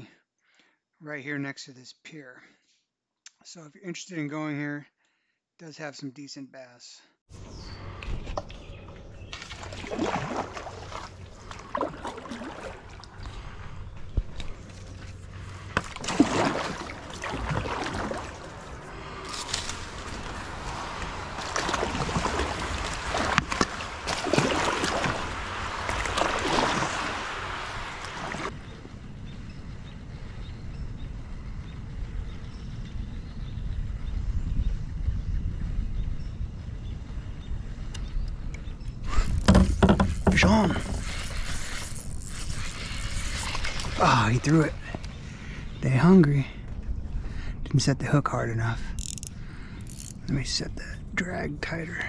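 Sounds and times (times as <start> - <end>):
paddle strokes splashing water: 9.3 - 13.7, 14.7 - 28.5, 39.2 - 41.9.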